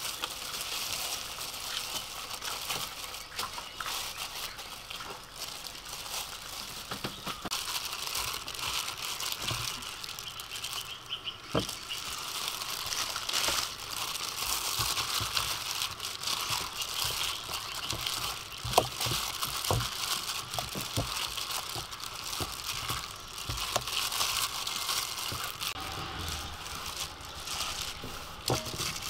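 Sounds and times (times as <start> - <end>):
plastic gloves crinkling: 0.0 - 29.0.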